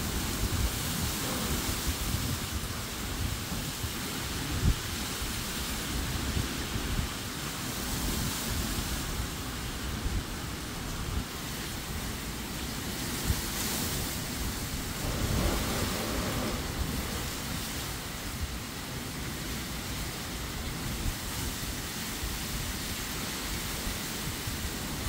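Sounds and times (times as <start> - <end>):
wind buffeting microphone: 0.0 - 7.3, 7.9 - 25.0
rain: 0.0 - 25.0
wind rushing through palm fronds: 0.0 - 25.0.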